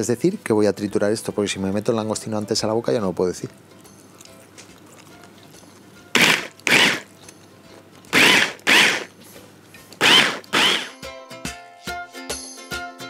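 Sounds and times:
stick blender chopping: 6.2 - 7.1, 8.1 - 9.1, 10.0 - 11.0.

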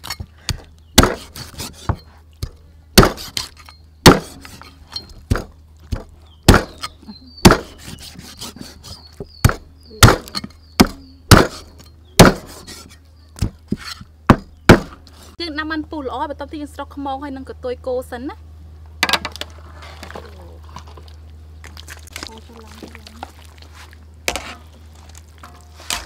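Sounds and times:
cleaver chopping bone on wood: 0.0 - 4.6, 5.3 - 12.7, 13.4 - 15.0.

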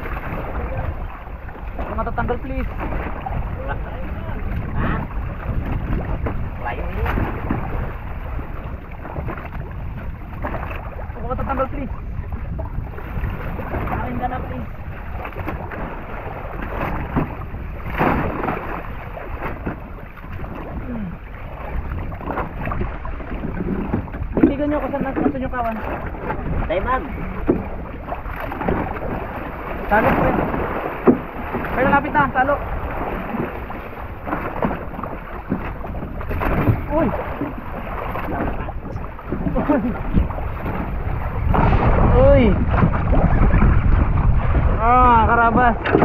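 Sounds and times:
fishing boat at sea: 0.0 - 46.0
water noise: 0.0 - 46.0
wind: 0.0 - 46.0.

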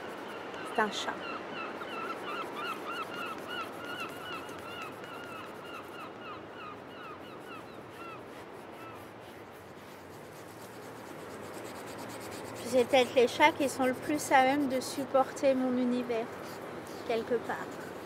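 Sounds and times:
felt-tip marker squeaking: 2.3 - 6.0.

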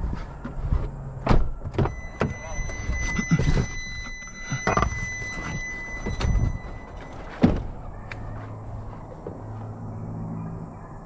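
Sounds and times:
knocks and rustling: 0.0 - 9.7
truck door shutting: 1.2 - 8.3
steady high tone: 1.9 - 8.6.

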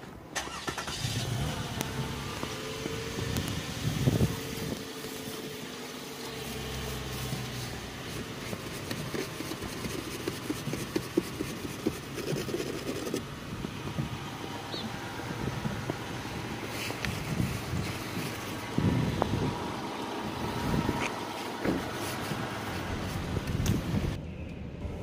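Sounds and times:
engine-like hum: 0.0 - 25.0
brush sweeping snow off car: 0.4 - 13.2, 16.2 - 18.7, 20.6 - 23.4.

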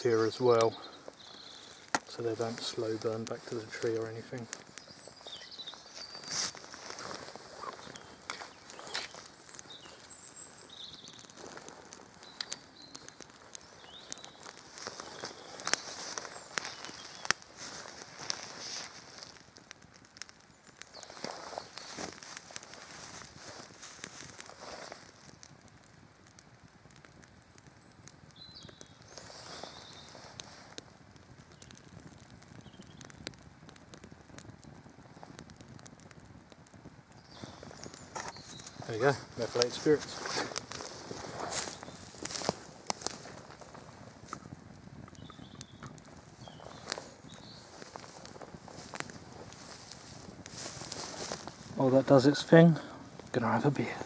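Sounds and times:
campfire crackling and popping: 0.0 - 54.0
bird chirping: 0.1 - 11.6, 12.2 - 18.0, 37.2 - 42.5, 45.1 - 48.3.

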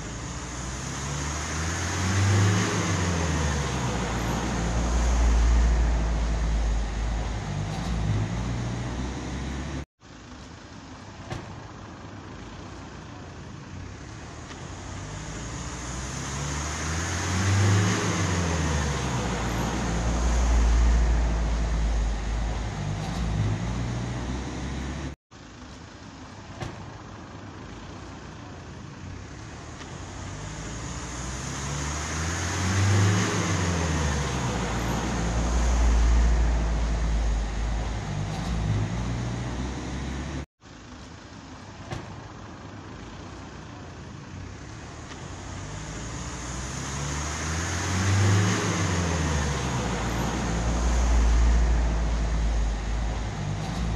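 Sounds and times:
vehicle passing by: 0.0 - 9.8, 14.7 - 25.2, 29.5 - 40.5, 44.5 - 53.9.

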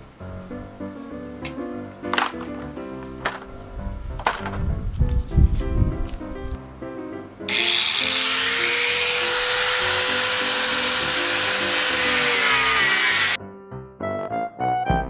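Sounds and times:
background music: 0.0 - 15.0
angle grinder cutting metal sheet: 7.5 - 13.4.

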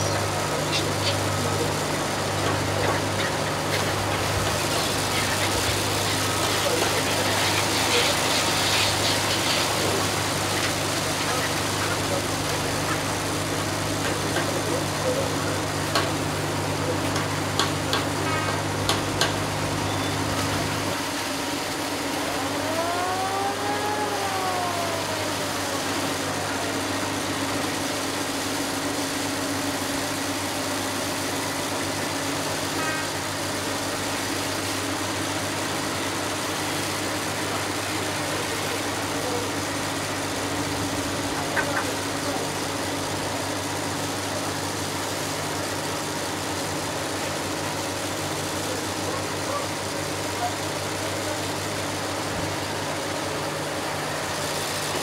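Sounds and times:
boat engine humming: 0.0 - 31.1.

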